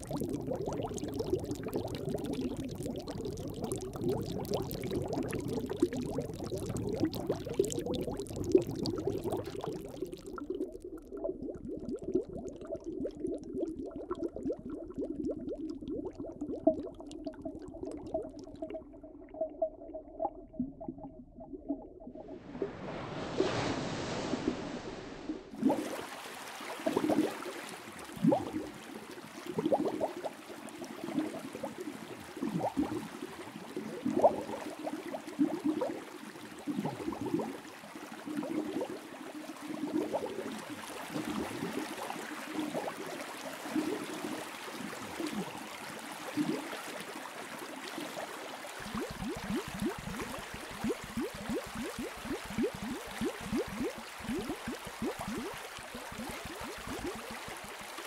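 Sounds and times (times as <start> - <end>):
aquarium water bubbling: 0.0 - 58.0.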